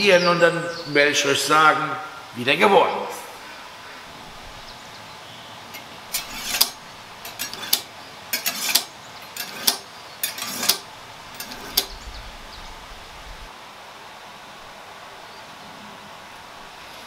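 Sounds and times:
sharp metallic click: 5.8s - 12.0s
knife scraping through sharpener: 6.1s - 10.8s, 11.4s - 11.9s.

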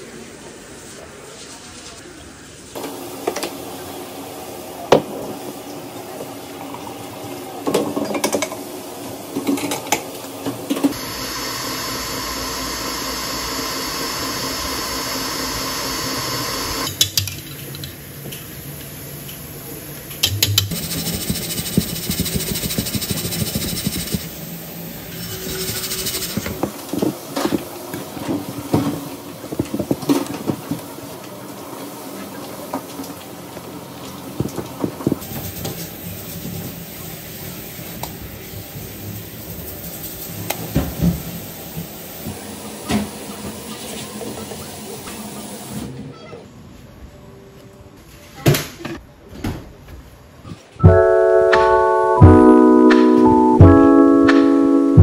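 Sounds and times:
stand mixer whisking batter: 11.0s - 16.9s.

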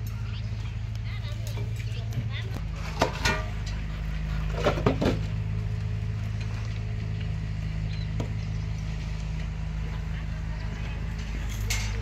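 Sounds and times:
engine drone: 0.0s - 12.0s
metal plates clanking: 2.8s - 5.3s, 11.1s - 12.0s.

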